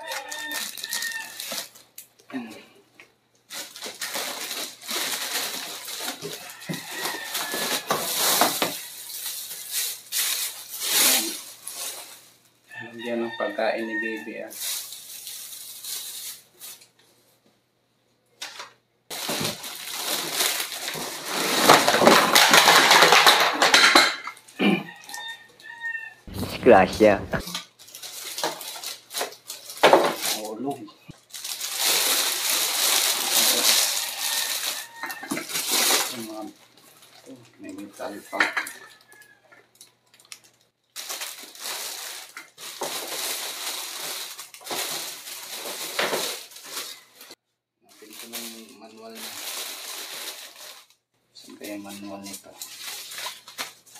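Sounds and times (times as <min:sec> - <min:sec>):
plastic wrapping crinkling: 0:00.0 - 0:02.0, 0:03.5 - 0:12.4, 0:14.5 - 0:17.1, 0:19.1 - 0:23.7, 0:26.3 - 0:37.9, 0:39.8 - 0:51.0, 0:51.8 - 0:53.9.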